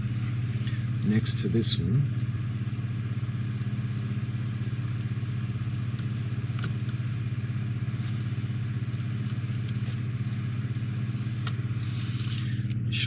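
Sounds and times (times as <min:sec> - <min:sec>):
machine humming with fast pulse: 0:00.0 - 0:13.0
small parts clicking: 0:11.4 - 0:12.8.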